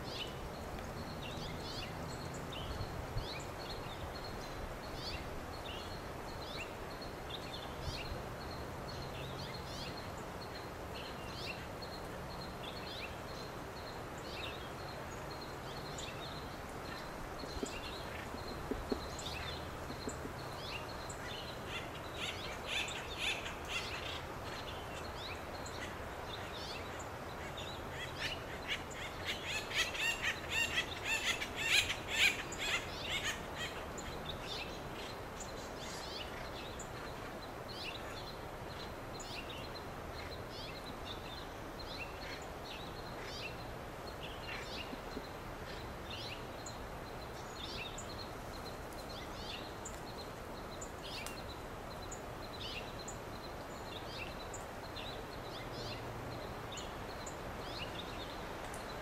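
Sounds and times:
steady background noise: 0.0 - 59.0
woodpeckers calling: 16.0 - 38.2.

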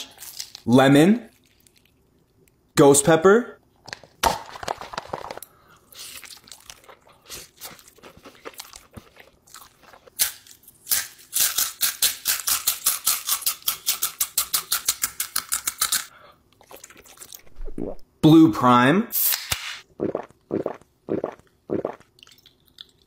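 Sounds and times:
chewing noodles: 1.3 - 2.4, 5.8 - 10.1.

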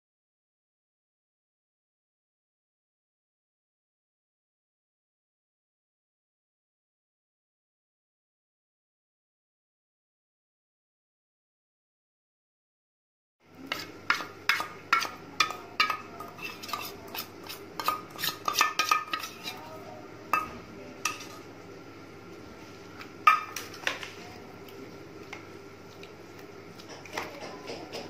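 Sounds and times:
metal spoon scraping steel bowl: 13.6 - 19.8.

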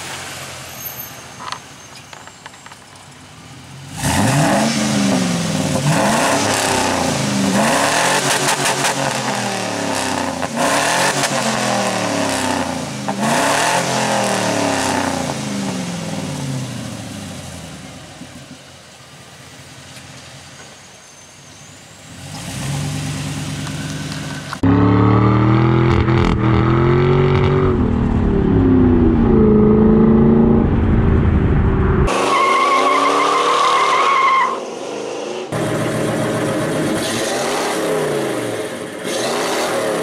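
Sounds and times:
engine exhaust revving: 3.9 - 16.7, 22.2 - 32.4, 35.5 - 40.0
truck driving off: 21.0 - 34.0
engine idling: 35.6 - 37.0.

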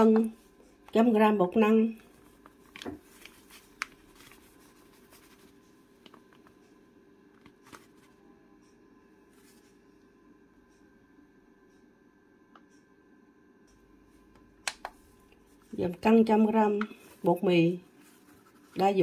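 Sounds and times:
faint steady hum: 0.0 - 19.0.

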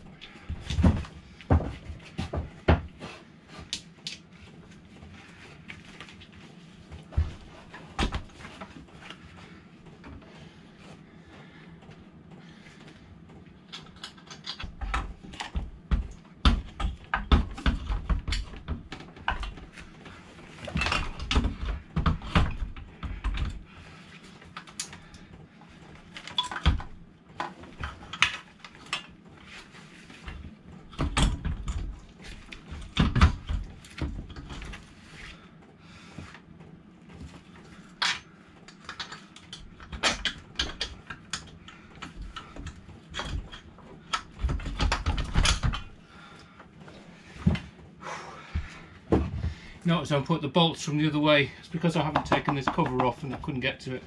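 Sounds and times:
heavy thumps: 41.7 - 49.8.

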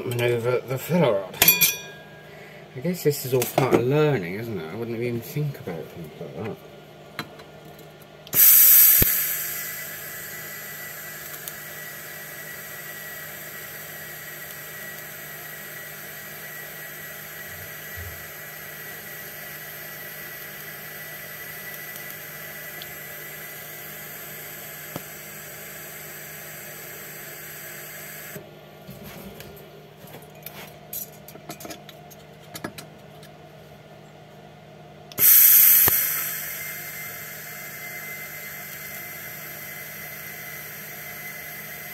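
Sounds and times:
welding arc hissing: 8.3 - 28.4, 35.2 - 41.9.

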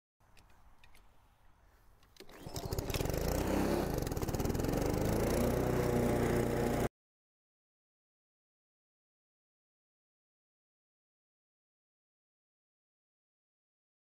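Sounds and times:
lawn mower engine running: 2.2 - 6.9.

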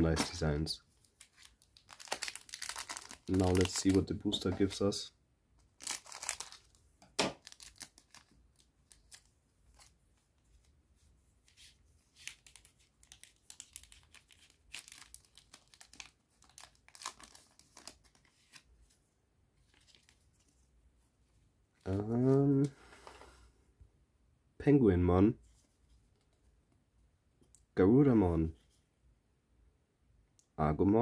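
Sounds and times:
foil wrapper tearing and crinkling: 1.3 - 4.0, 5.8 - 6.7, 7.4 - 9.9, 12.2 - 18.2.

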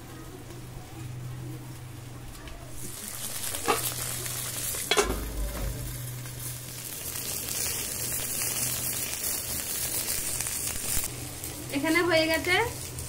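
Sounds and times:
fish sizzling in oil: 2.8 - 13.0.

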